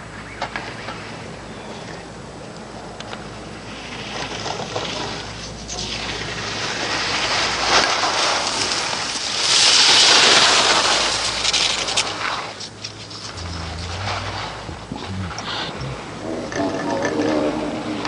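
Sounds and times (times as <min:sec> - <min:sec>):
skis scraping on snow: 0:03.6 - 0:14.8.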